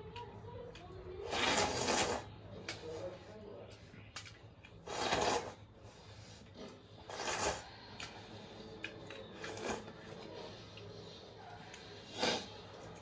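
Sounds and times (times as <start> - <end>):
person slurping broth: 7.0 - 7.8, 12.0 - 12.8.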